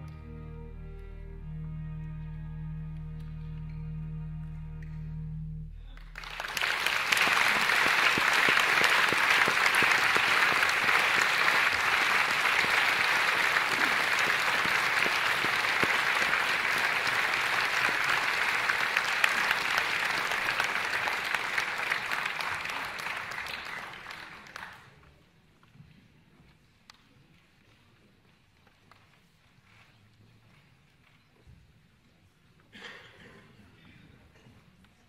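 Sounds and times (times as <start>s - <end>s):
audience applauding: 5.9s - 25.0s.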